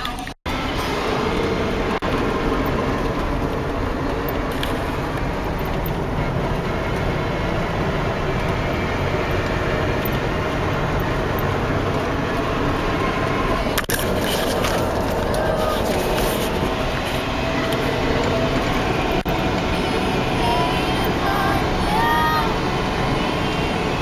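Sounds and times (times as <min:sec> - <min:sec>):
car interior driving noise: 0:00.0 - 0:24.0.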